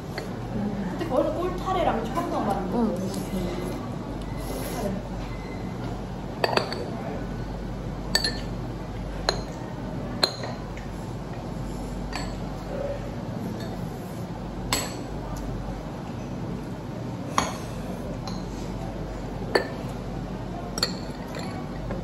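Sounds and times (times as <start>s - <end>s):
cutlery clinking on ceramic bowls: 6.4s - 6.9s, 8.1s - 8.5s, 10.2s - 10.6s, 12.1s - 12.4s, 19.5s - 19.9s, 20.8s - 21.6s.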